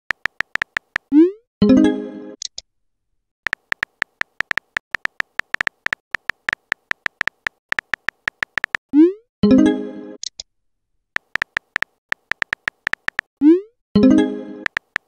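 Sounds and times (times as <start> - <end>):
keyboard typing clicks: 0.1 - 1.2, 3.5 - 8.8, 11.2 - 13.3, 14.6 - 15.0.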